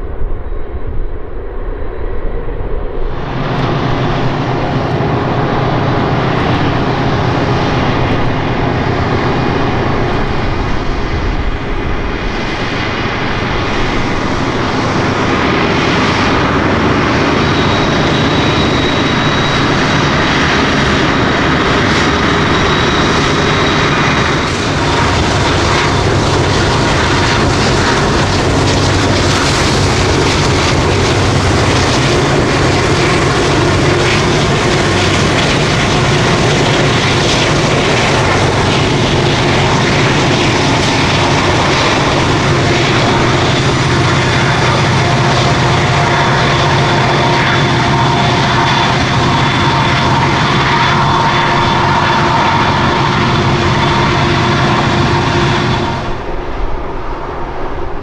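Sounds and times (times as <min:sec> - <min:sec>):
drone propellers whirring: 0:00.0 - 0:58.0.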